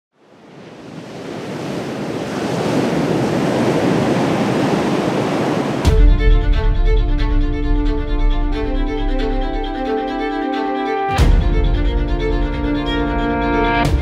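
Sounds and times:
ocean waves breaking: 0.2s - 14.0s
string music with violin: 5.8s - 14.0s.

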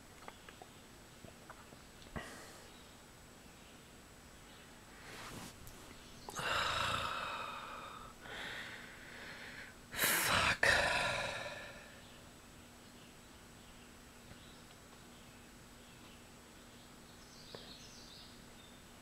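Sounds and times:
man sighing heavily: 2.2s - 2.7s, 6.3s - 12.0s.

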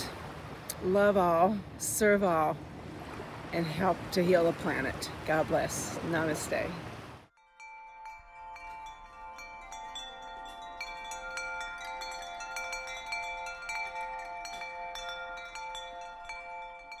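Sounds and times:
wind chimes ringing: 7.4s - 17.0s.

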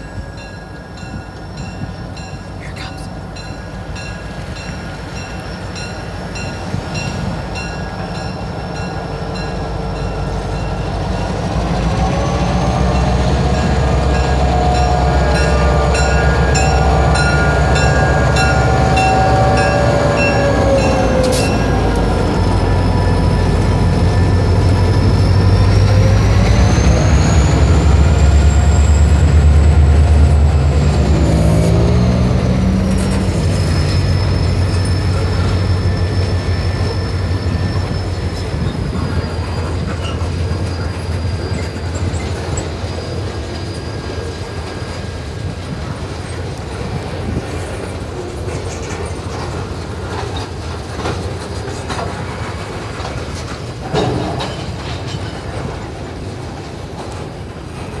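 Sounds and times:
diesel locomotive engine drone: 0.0s - 58.0s
high wheel squeal: 12.1s - 29.6s, 31.0s - 45.5s
wheels clicking over rail joints: 38.4s - 58.0s.

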